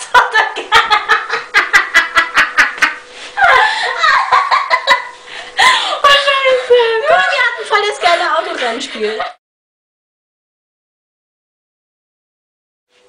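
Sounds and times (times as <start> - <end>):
women laughing: 0.0 - 9.4.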